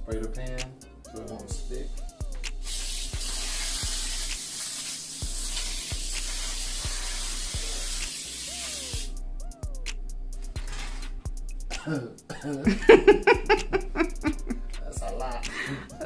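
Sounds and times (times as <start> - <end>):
aerosol spray hiss: 2.5 - 9.1.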